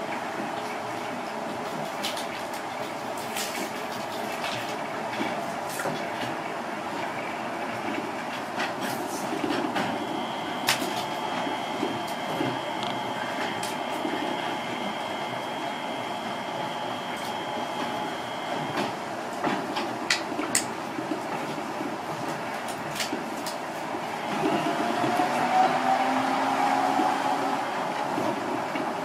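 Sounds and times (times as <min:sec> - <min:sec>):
train running rumble: 0:05.3 - 0:29.0
steady high whine: 0:09.1 - 0:19.3.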